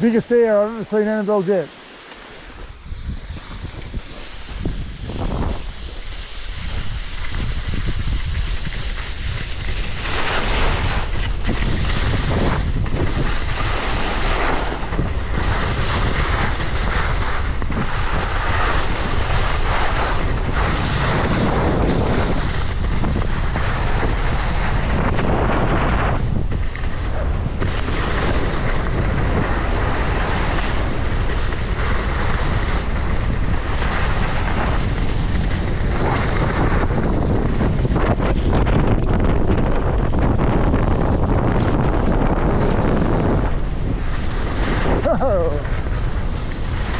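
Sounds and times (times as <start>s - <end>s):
skis scraping over snow: 0.0s - 46.9s
wind rushing over microphone: 0.0s - 46.9s.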